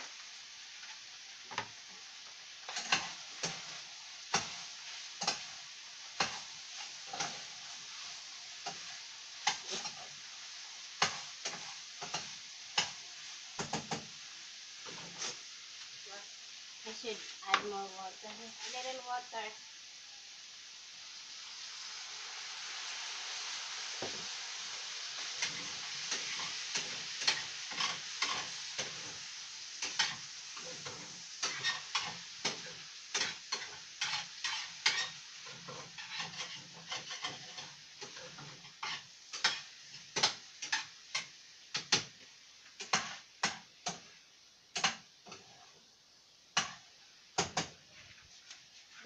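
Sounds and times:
food sizzling in a frying pan: 0.0 - 49.0
spatula scraping a pan: 0.7 - 14.1, 14.8 - 15.5, 25.2 - 42.2, 42.8 - 44.1, 44.8 - 45.9, 46.6 - 46.9.

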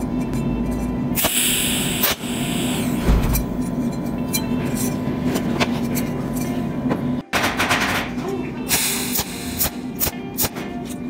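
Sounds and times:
welder hissing and crackling: 1.2 - 3.0, 8.7 - 10.1.

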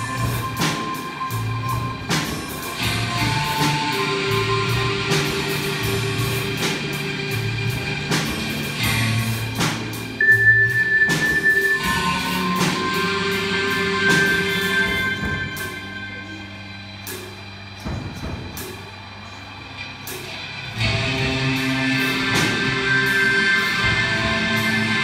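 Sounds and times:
robotic band music: 0.0 - 25.0
high held note: 10.2 - 17.4.

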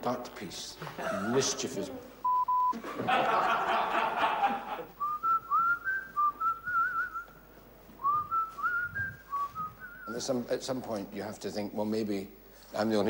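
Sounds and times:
person whistling a tune: 5.0 - 7.4, 8.0 - 10.1.

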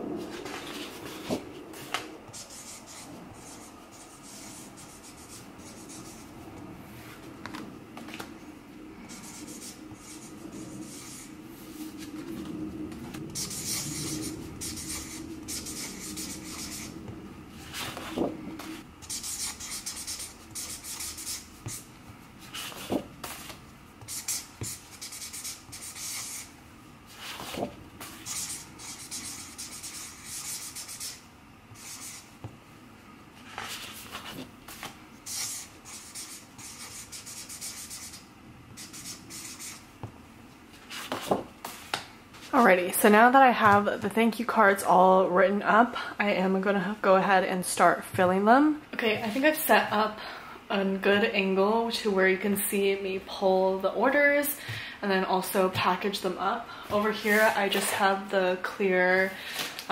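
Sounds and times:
marker scratching on card: 19.0 - 21.8, 22.5 - 26.5, 27.2 - 31.2, 31.8 - 32.3, 33.6 - 38.2, 38.8 - 39.8.

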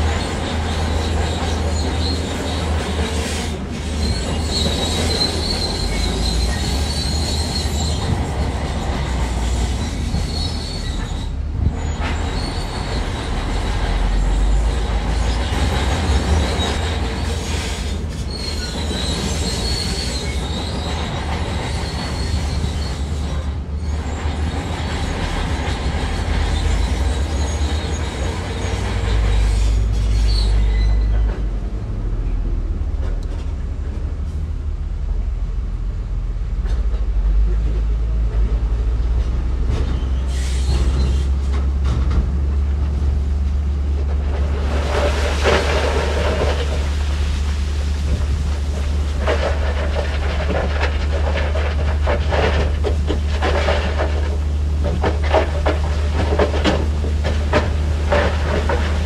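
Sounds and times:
high-pitched metallic squeal: 0.0 - 31.4
heavy machinery engine rumble: 0.0 - 59.0.

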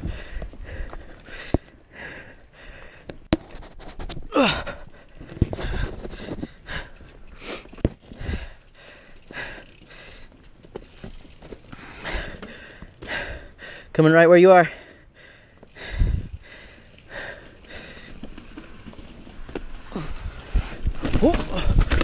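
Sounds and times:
person panting hard: 0.0 - 3.1, 4.3 - 10.4, 11.3 - 13.9, 14.7 - 18.4
bike clattering over rocks: 5.0 - 13.2, 20.6 - 22.0.

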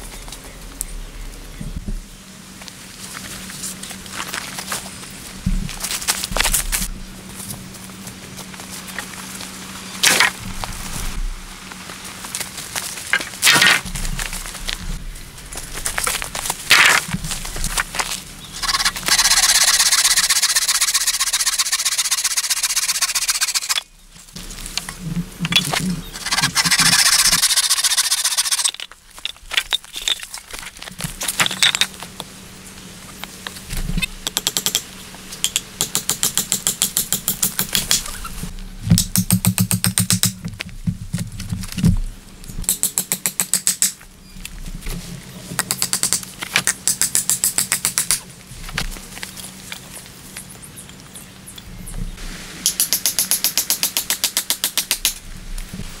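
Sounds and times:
bow saw cutting wood: 18.6 - 23.8, 26.2 - 28.7
hatchet chopping tree trunk: 35.4 - 38.2, 38.9 - 40.5, 45.6 - 48.2, 52.7 - 55.2.

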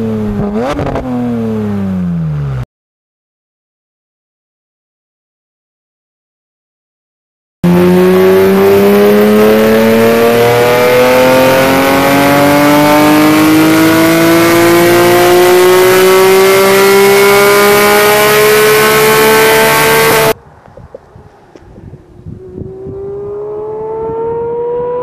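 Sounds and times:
car engine revving under load: 0.0 - 2.6, 7.6 - 25.0.

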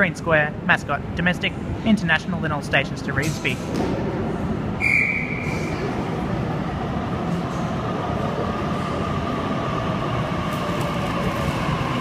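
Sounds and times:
electric train rumbling: 4.0 - 12.0.

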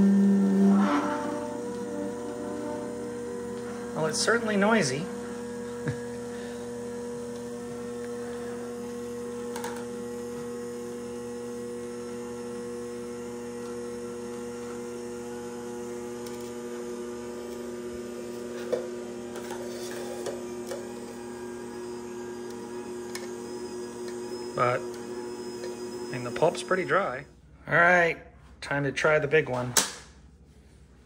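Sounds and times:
juicer motor humming: 0.0 - 27.3.

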